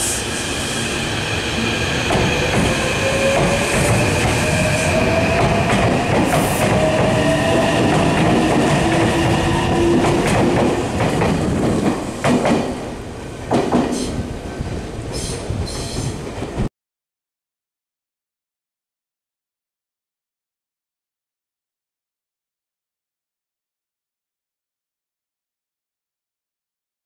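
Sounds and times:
train cars rumbling: 0.0 - 16.7.

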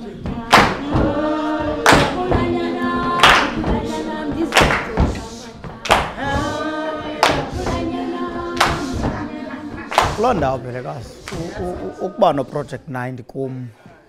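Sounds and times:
group singing unaccompanied: 0.0 - 12.9
hand claps: 0.5 - 1.2, 1.8 - 2.4, 3.1 - 10.4.

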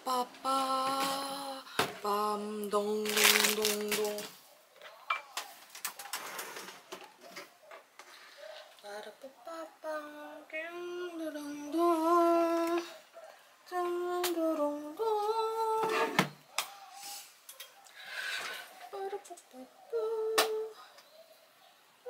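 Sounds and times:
woman humming: 18.9 - 20.8.

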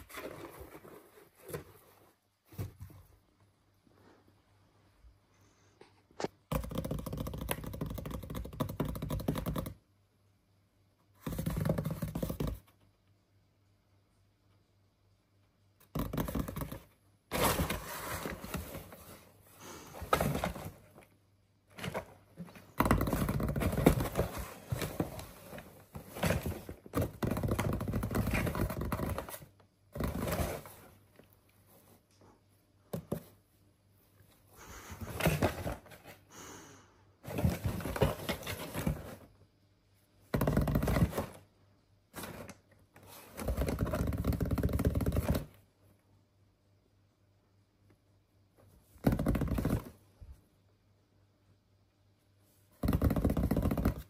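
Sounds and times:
kitten scratching cardboard box: 11.2 - 12.6, 21.8 - 30.9, 40.3 - 41.4, 42.2 - 45.5.

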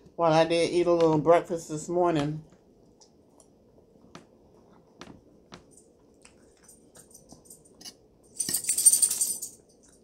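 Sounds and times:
soft chewing and mouth smacks: 2.5 - 7.8
fork scraping a plate: 7.7 - 8.0.

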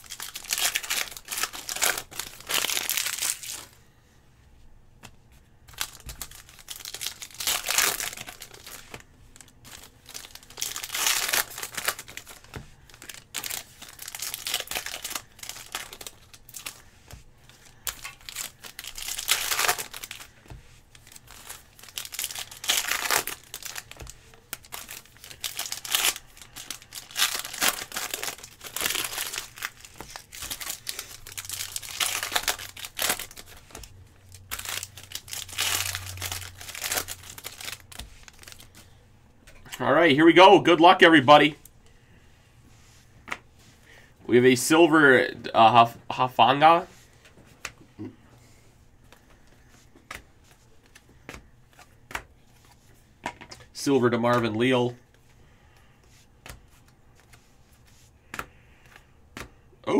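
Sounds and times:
foil wrappers crinkling and tearing: 0.0 - 3.8, 5.7 - 39.0.

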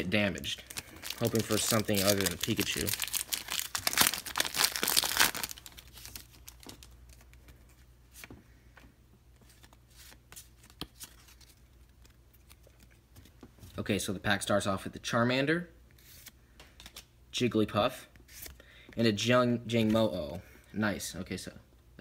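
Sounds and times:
foil wrapper tearing and crinkling: 0.5 - 7.0.

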